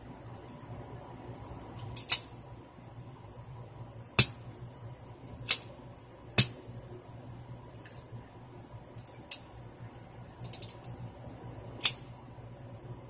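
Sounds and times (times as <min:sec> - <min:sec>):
toy blaster mechanism clicking: 0:11.8 - 0:12.0.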